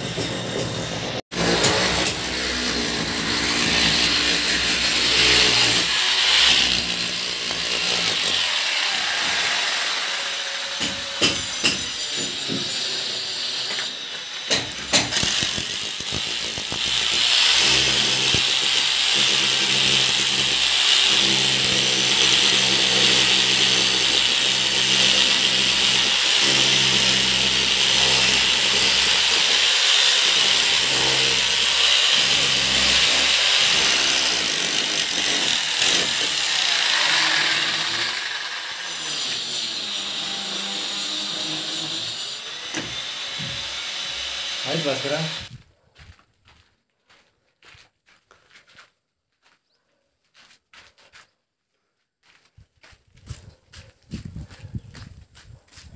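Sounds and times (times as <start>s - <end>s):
electric hammer chiselling brick: 0.0s - 9.0s, 10.6s - 45.5s.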